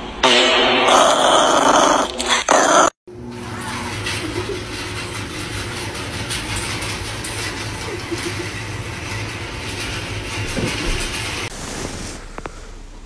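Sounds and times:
chain conveyor rattling and clicking: 3.5s - 11.5s.

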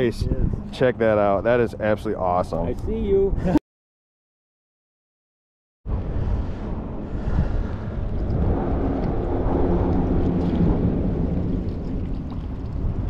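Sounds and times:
loud low rumbling: 5.9s - 13.0s.

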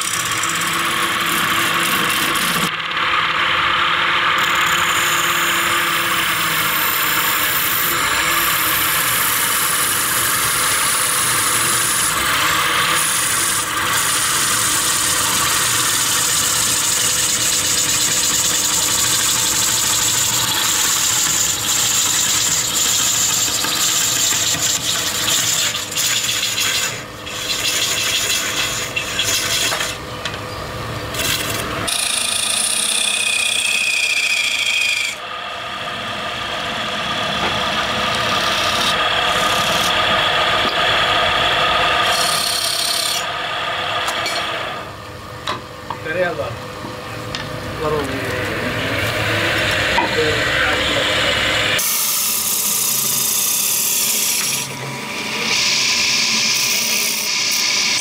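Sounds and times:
wood lathe running: 0.0s - 30.4s, 31.1s - 58.0s
chisel scraping wood: 13.0s - 30.0s, 37.4s - 40.0s.

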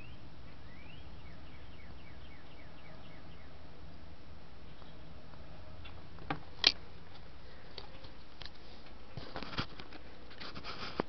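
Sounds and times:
rustling from handling camera: 6.6s - 11.0s.

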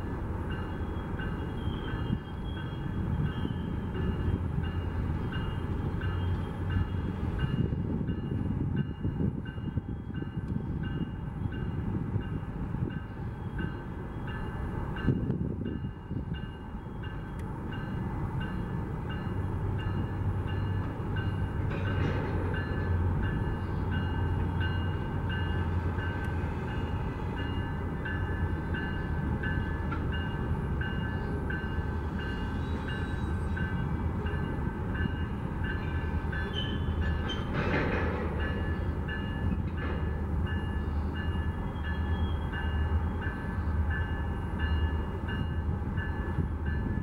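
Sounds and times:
train rumbling past: 0.0s - 47.0s.

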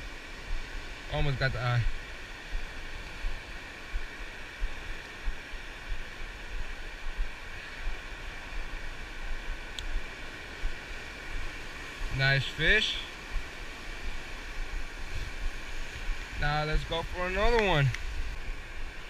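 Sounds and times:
ocean surf washing: 0.0s - 19.0s
wind buffeting microphone: 13.2s - 19.0s.

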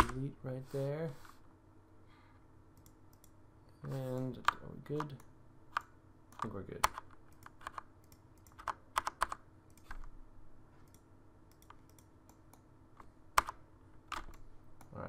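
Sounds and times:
computer keyboard keystrokes: 4.2s - 10.1s, 10.8s - 12.6s.

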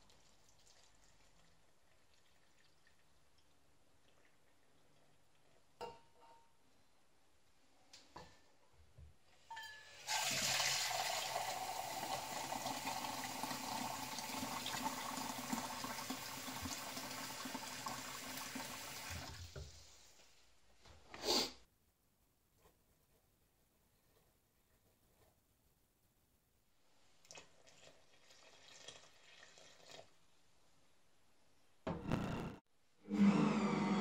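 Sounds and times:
tap water running into a metal cup: 10.0s - 19.6s.

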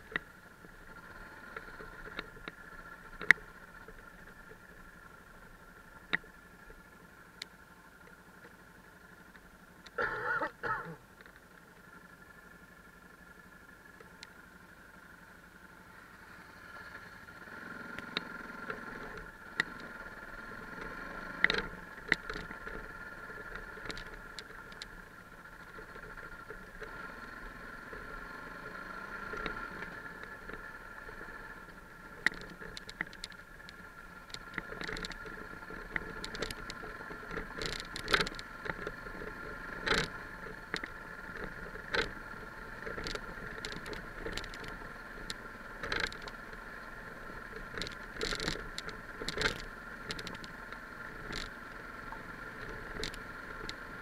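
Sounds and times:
motorcycle engine drone: 0.0s - 54.0s
knocks and rattles from stones: 34.3s - 38.9s.

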